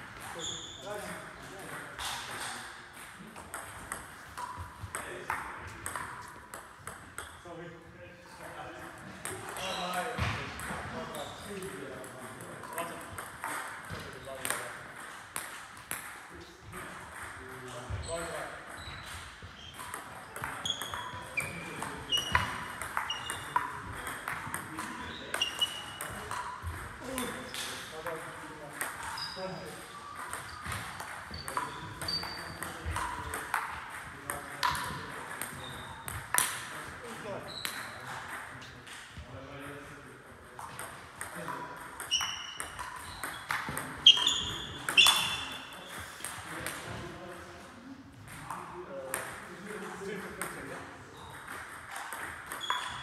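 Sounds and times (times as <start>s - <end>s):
ball bouncing on table: 1.6s - 7.4s, 9.0s - 39.2s, 40.5s - 47.1s, 48.2s - 49.8s, 50.4s - 53.0s
ball clicking off bats: 19.7s - 36.7s, 40.6s - 46.8s.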